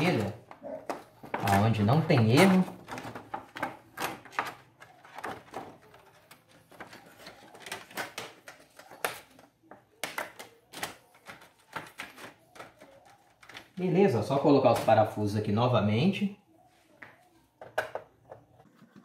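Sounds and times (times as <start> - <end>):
plastic sheet crinkling and clicking: 0.0 - 13.9.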